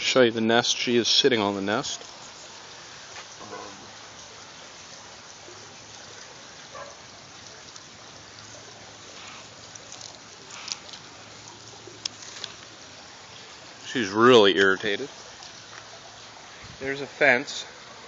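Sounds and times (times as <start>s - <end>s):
water trickling: 0.0s - 18.0s
foliage brushing against camera: 9.0s - 17.0s.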